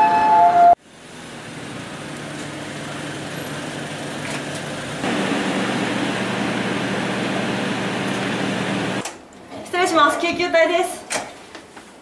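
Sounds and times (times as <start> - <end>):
ambulance engine humming: 0.0 - 9.0.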